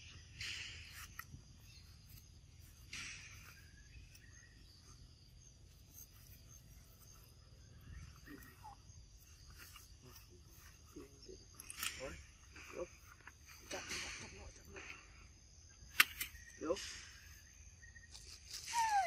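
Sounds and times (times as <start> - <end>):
insects chirring: 0.0 - 19.0.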